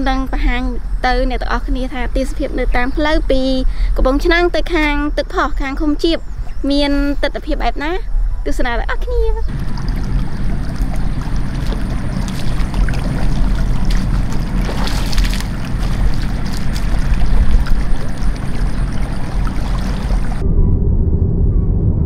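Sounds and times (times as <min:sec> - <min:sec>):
water rushing past rocks: 0:09.5 - 0:20.4.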